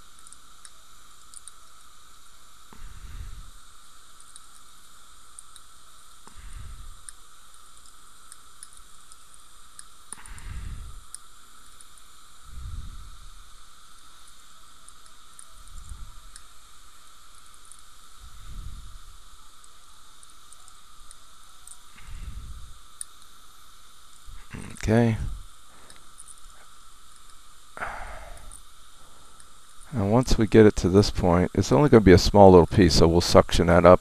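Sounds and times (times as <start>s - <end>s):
background hiss: 0.0s - 34.0s
faint high whine: 0.0s - 34.0s
breath puffs on microphone: 10.2s - 11.0s, 27.8s - 29.4s.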